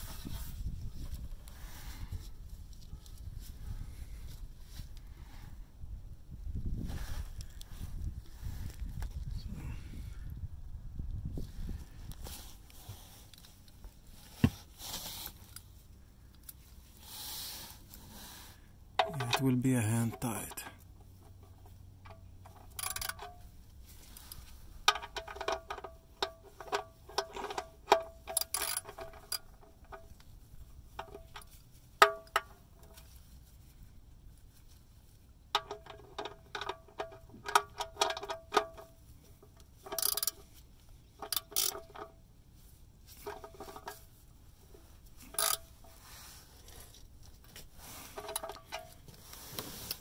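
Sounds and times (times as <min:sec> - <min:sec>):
ratchet clicking: 0:39.9 - 0:40.4, 0:41.2 - 0:41.8, 0:45.3 - 0:45.7.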